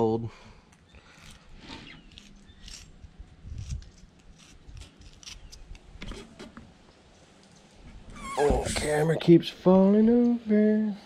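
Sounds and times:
knife scraping fish skin: 1.2 - 5.6.

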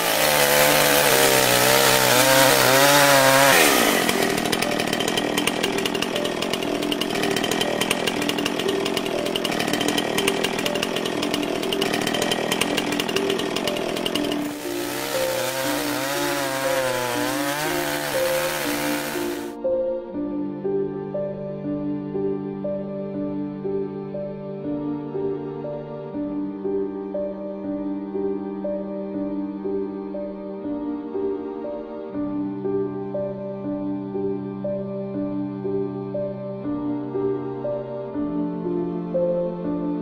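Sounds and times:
chainsaw cutting tree: 0.0 - 19.6.

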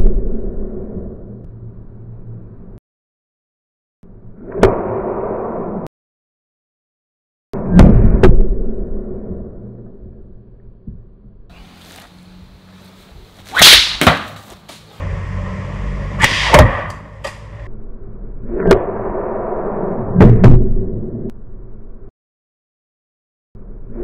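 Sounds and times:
sling whip-like cracks: 13.4 - 14.7, 16.2 - 17.4.

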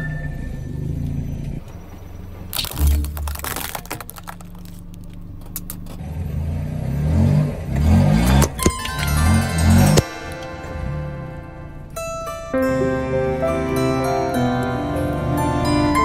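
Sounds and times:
low rumble of car: 0.0 - 16.0
car tyre crushing brittle objects: 1.6 - 6.2, 7.0 - 10.7.

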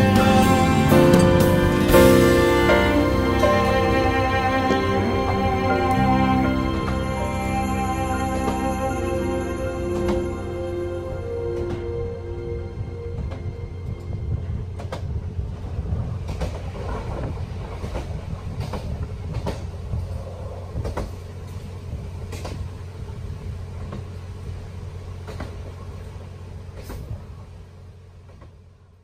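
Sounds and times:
train rumble on track: 0.0 - 29.0
wheels clicking over rail joints: 13.2 - 29.0.

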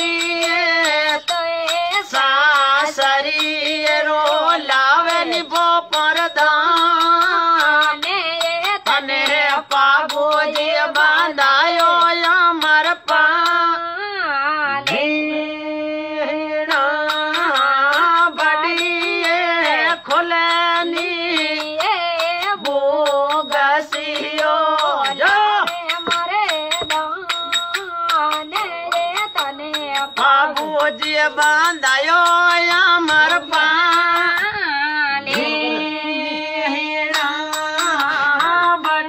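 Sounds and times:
sharp percussive clicks: 16.7 - 34.6.

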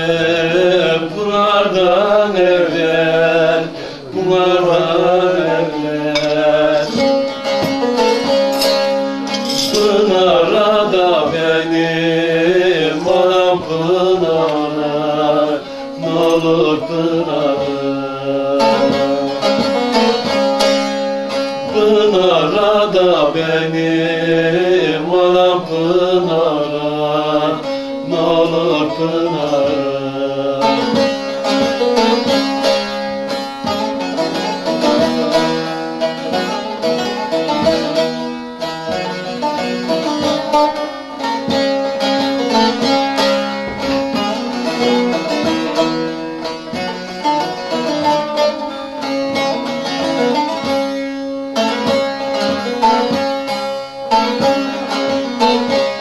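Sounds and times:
man singing: 0.0 - 7.7, 9.4 - 20.2, 21.5 - 32.4
plucked long-necked lutes strumming: 0.0 - 56.0.

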